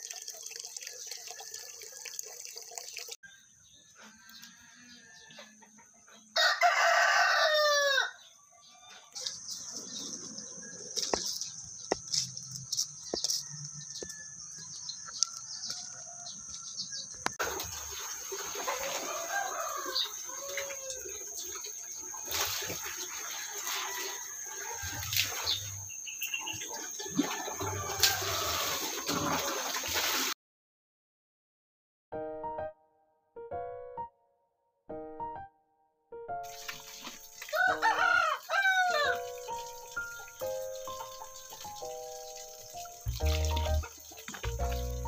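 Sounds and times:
tap running into a bucket: 0.0s - 3.2s
chickens clucking: 17.4s - 23.3s
water sloshing and splashing: 17.4s - 25.9s, 26.6s - 30.4s, 36.5s - 37.8s.

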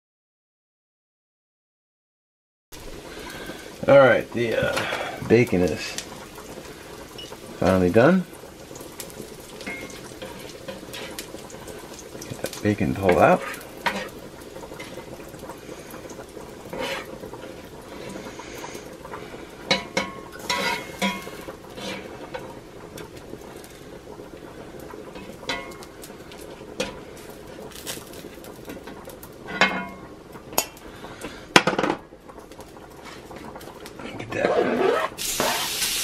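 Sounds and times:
bacon grease sizzling in a skillet: 2.8s - 36.0s
metal spatula scraping pan: 9.2s - 11.6s, 13.0s - 15.1s, 16.6s - 18.8s, 19.7s - 22.5s, 29.4s - 30.0s, 34.0s - 36.0s.

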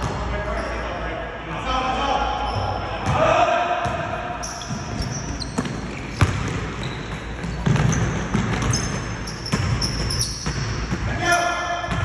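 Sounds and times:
sneakers squeaking on hardwood: 2.4s - 3.2s, 4.4s - 12.0s
basketball bouncing: 3.0s - 11.1s.

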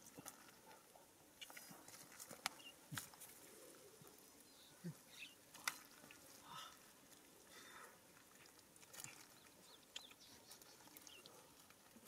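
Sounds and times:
wet clicks and squelches in mud: 1.3s - 4.2s, 5.4s - 6.4s, 8.1s - 12.0s.

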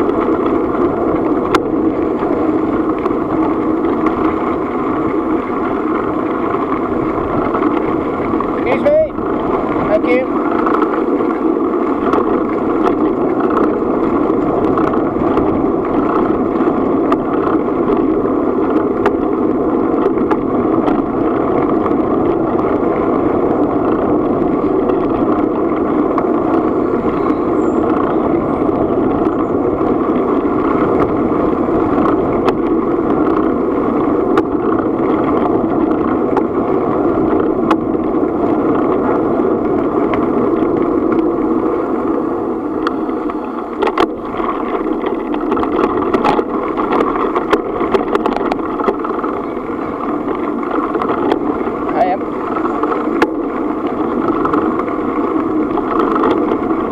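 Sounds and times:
rumble of travel on gravel: 0.0s - 56.9s
wind: 0.0s - 56.9s
faint clicks: 42.8s - 51.7s.

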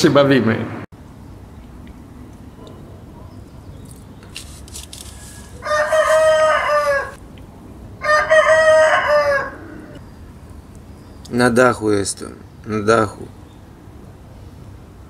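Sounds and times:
rooster crowing: 5.3s - 7.2s, 8.0s - 10.0s.

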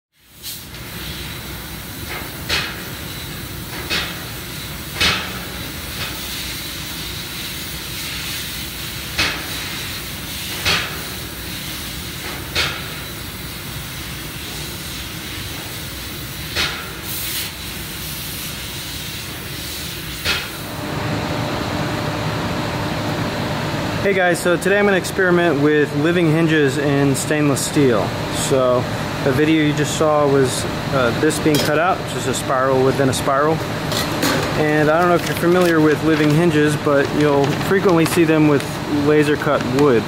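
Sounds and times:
steady low hum: 20.5s - 40.0s.

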